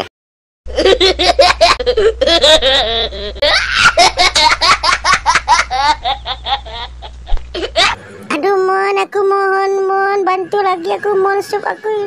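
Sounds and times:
boys laughing hard: 0.7s - 8.0s.

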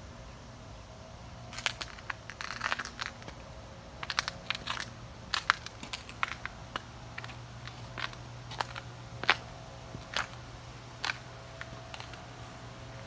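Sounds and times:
steady low hum: 0.0s - 13.0s
crunching and crackling clicks: 1.5s - 3.4s, 4.0s - 12.3s.

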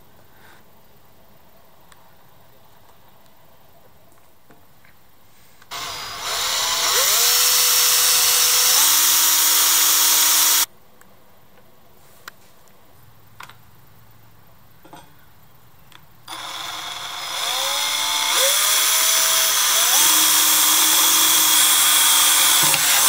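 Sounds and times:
cordless drill boring metal: 5.7s - 10.7s, 16.3s - 23.0s.

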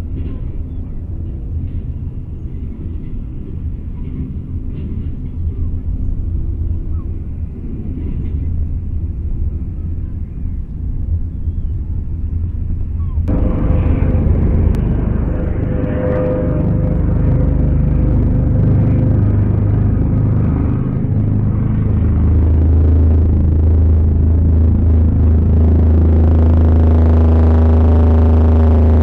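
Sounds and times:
helicopter rumble: 0.0s - 29.0s
steady hum: 0.0s - 29.0s.

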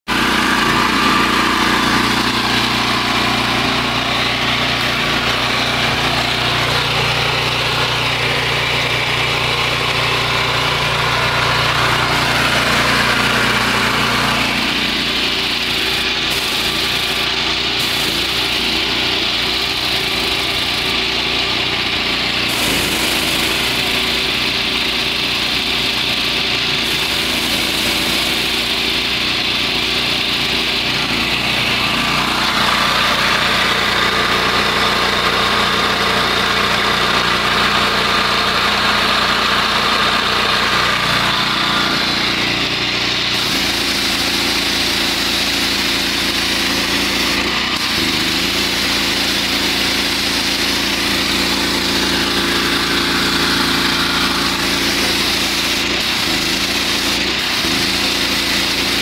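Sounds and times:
pressure washer engine running: 0.0s - 59.0s
water spray hissing: 11.7s - 21.0s, 22.5s - 24.5s, 26.8s - 29.0s, 43.3s - 59.0s.

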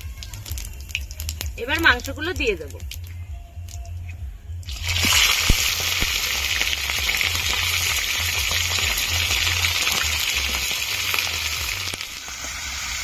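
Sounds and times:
chicken sizzling in hot oil: 4.7s - 13.0s.

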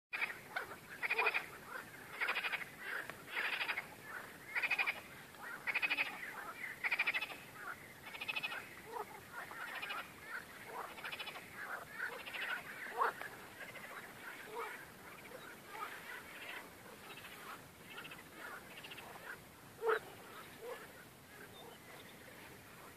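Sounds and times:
frog loud rattling croak: 0.2s - 3.9s, 4.5s - 5.0s, 5.6s - 6.2s, 6.8s - 10.1s, 10.7s - 15.8s
faint frog calls: 0.2s - 22.9s.

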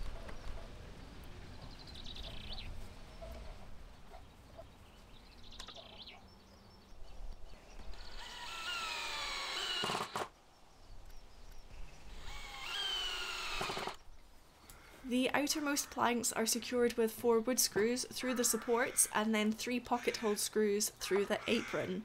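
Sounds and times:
cordless drill driving screws: 7.8s - 10.3s, 12.1s - 14.0s.

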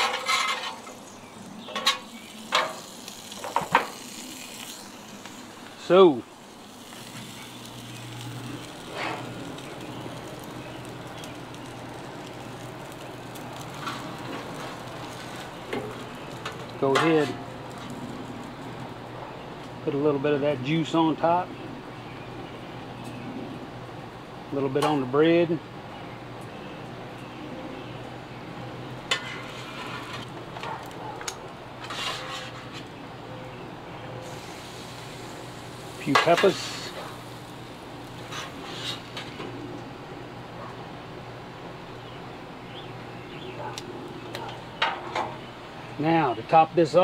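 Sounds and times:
metal scraping: 0.0s - 6.0s, 6.9s - 9.5s, 29.1s - 30.8s, 31.8s - 32.9s, 38.2s - 39.5s
low rumble and hiss: 31.5s - 47.0s.

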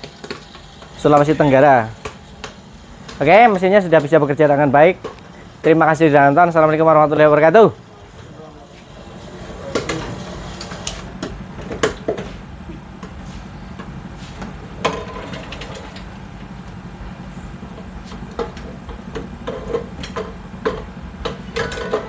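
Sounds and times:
popcorn machine humming: 0.0s - 22.0s
metal pot clanking: 18.4s - 22.0s.

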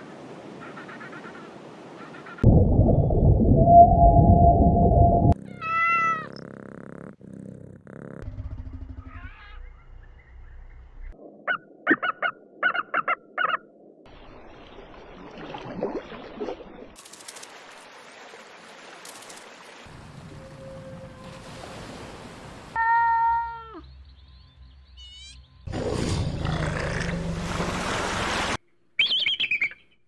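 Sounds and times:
cat meow: 5.4s - 6.4s
whale call: 20.2s - 21.8s.

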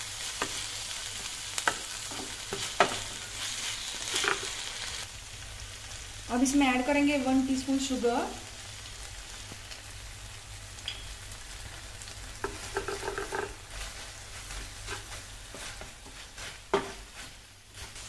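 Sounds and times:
low sizzle: 0.0s - 18.0s
wooden spatula scraping pan: 12.4s - 18.0s.

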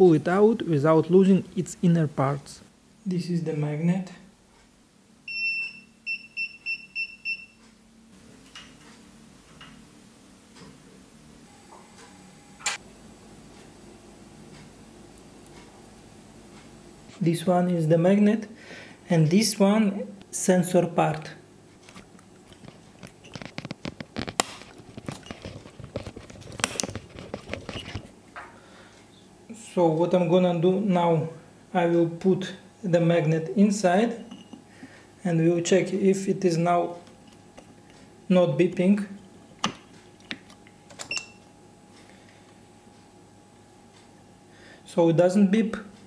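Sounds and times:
electric scooter warning beeps: 5.3s - 7.6s.

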